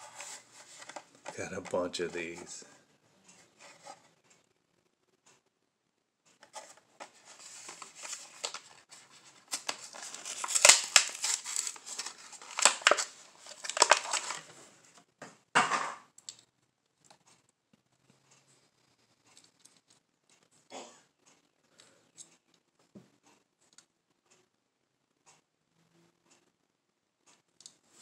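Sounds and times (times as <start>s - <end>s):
plastic packaging crinkling: 0.0s - 1.4s, 6.5s - 14.6s
cardboard tearing: 6.5s - 14.5s.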